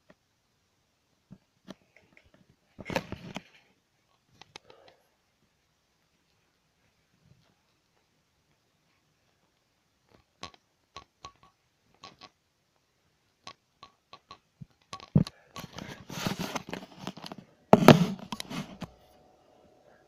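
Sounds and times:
rustling and scuffling: 0:15.2 - 0:19.2
heavy thumps: 0:17.7 - 0:18.9.

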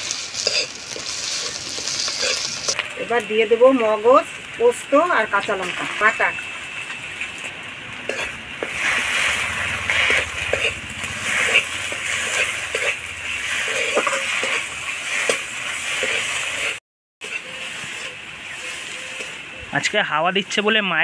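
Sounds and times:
frying sizzle: 0:00.0 - 0:21.0
metal spatula scraping pan: 0:08.1 - 0:19.4.

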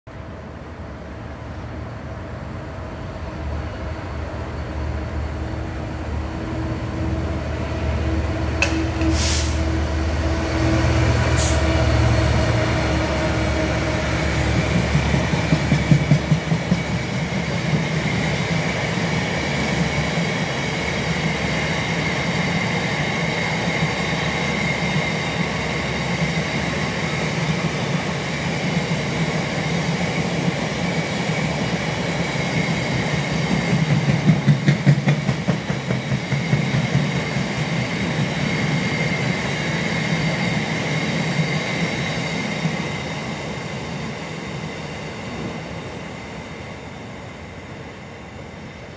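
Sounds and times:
train wheels rumbling: 0:02.7 - 0:48.9.

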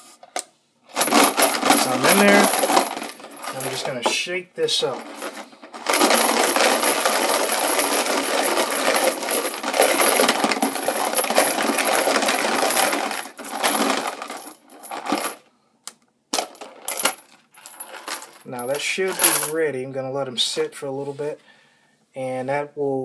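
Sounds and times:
brass cases rattling in plastic container: 0:00.9 - 0:04.2, 0:04.8 - 0:15.4, 0:16.4 - 0:19.5.

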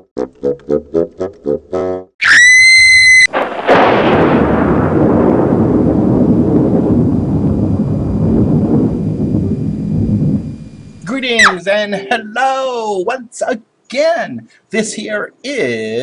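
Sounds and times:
crash and long rumble: 0:03.3 - 0:11.0.

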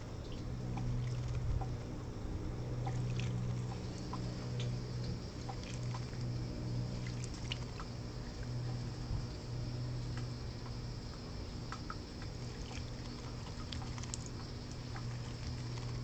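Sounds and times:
low steady hum: 0:00.0 - 0:16.0
bird splashing in water: 0:02.8 - 0:04.8, 0:05.4 - 0:07.9, 0:11.8 - 0:16.0.

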